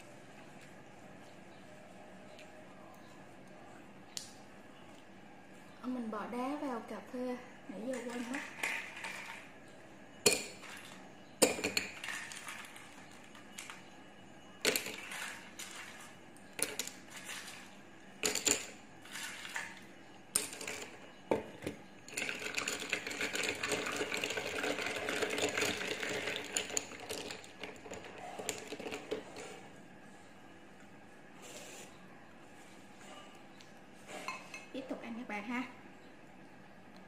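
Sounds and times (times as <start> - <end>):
spoon stirring ice in cup: 7.9 - 9.5, 10.3 - 13.8, 14.7 - 19.8, 22.1 - 29.6
ice cubes clinking into cup: 10.3 - 13.8, 14.6 - 16.0, 18.2 - 19.8, 22.1 - 29.2.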